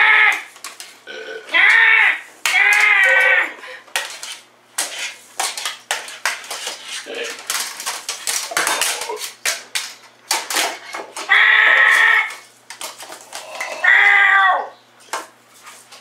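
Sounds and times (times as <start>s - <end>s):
cat meowing: 13.7s - 14.7s.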